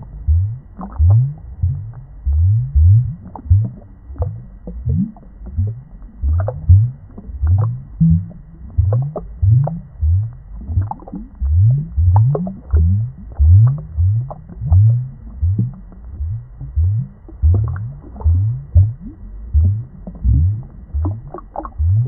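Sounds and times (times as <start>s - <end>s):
aquarium water bubbling: 0.0s - 22.0s.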